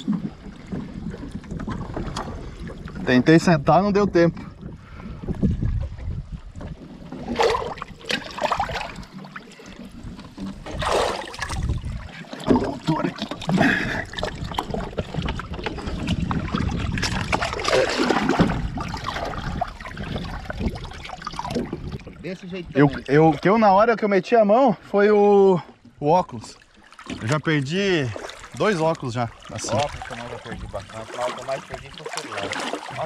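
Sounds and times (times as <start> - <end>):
water lapping against boat hull: 0.0 - 33.0.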